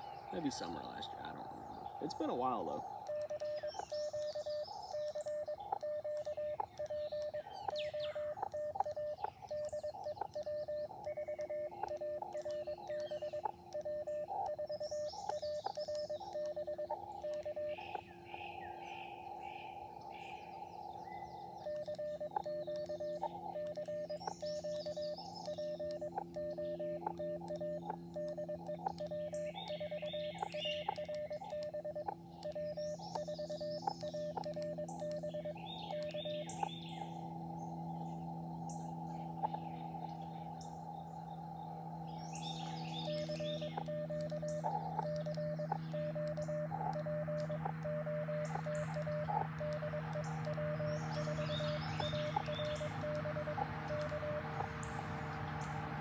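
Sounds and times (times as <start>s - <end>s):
radio receiver hiss: 0.0s - 18.1s
birds chirping: 0.0s - 56.0s
morse code tone: 2.2s - 18.1s, 21.6s - 36.8s, 42.4s - 55.0s.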